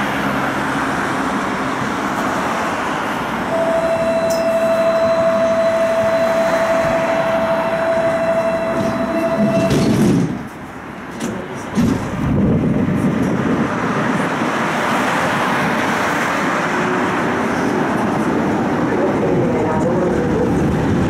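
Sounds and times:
tram rolling on rails: 0:00.0 - 0:21.0
high-pitched wheel squeal: 0:03.5 - 0:09.9.

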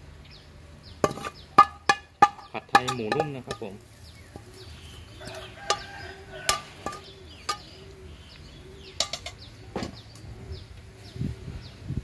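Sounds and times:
birds chirping: 0:00.0 - 0:12.0
chickens clucking: 0:00.8 - 0:11.8
metal wok knocking: 0:01.0 - 0:04.6, 0:05.2 - 0:07.8, 0:08.9 - 0:10.0.

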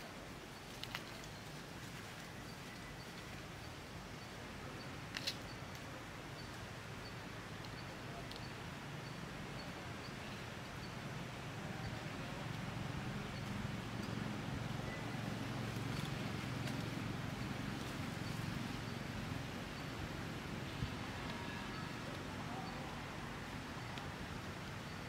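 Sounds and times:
outdoor background noise: 0:00.0 - 0:25.0.

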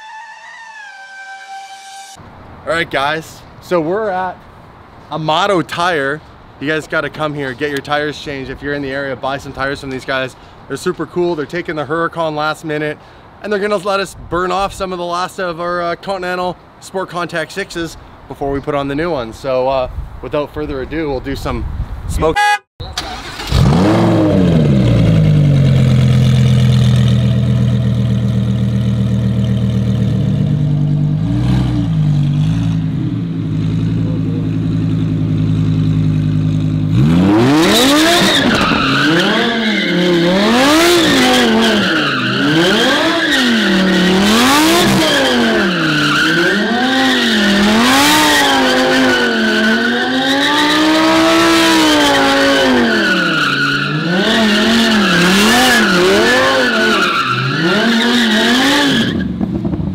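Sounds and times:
tires squealing: 0:00.0 - 0:02.2, 0:36.9 - 0:59.5
sports car engine revving: 0:23.2 - 0:59.7.

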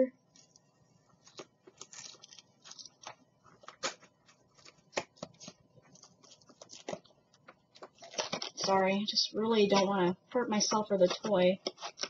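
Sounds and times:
plastic packaging crinkling: 0:00.3 - 0:08.8.

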